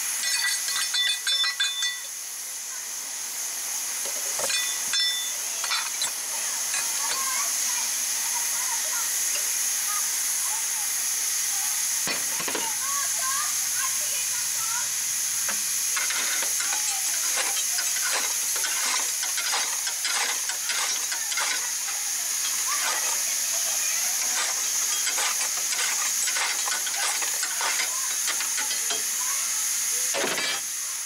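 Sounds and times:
steam hissing: 0:00.0 - 0:31.0.

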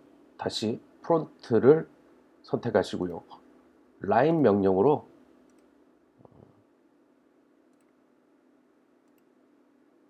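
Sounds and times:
faint computer mouse clicks: 0:05.4 - 0:05.7, 0:07.7 - 0:08.0, 0:09.0 - 0:09.3.

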